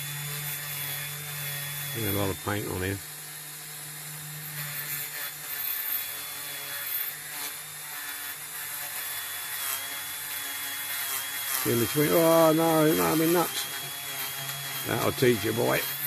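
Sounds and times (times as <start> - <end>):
rotary tool motor whine: 0.0 - 16.0
wire brush scratching metal: 11.1 - 16.0.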